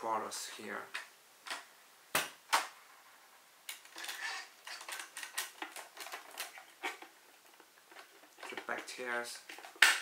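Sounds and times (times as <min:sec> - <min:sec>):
hard plastic clicks and clatter: 0:03.7 - 0:10.0.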